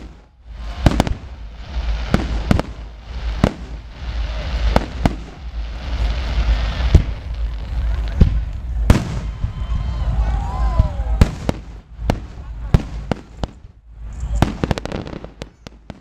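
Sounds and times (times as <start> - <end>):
continuous rushing noise: 0.0 - 11.2
fireworks bangs: 0.0 - 16.0.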